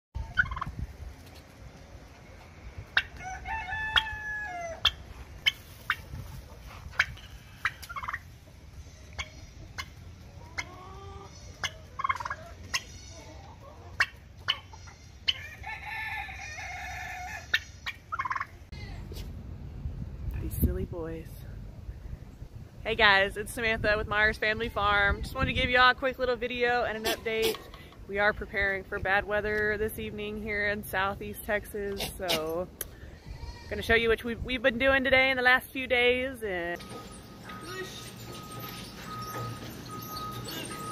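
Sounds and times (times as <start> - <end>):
wind rumble on microphone: 0.2 - 3.0, 6.0 - 7.6, 18.9 - 26.9, 28.0 - 35.4
poultry calls: 36.8 - 40.9.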